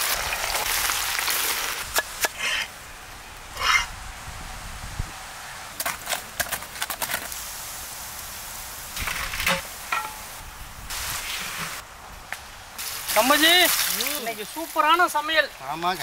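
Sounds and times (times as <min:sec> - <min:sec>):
vegetables deep-frying in oil: 0:00.0 - 0:02.0.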